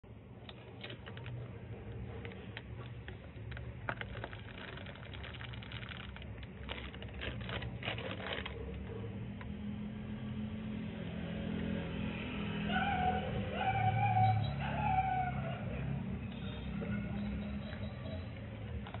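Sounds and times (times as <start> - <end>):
plastic packet crinkling: 0.4 - 9.0.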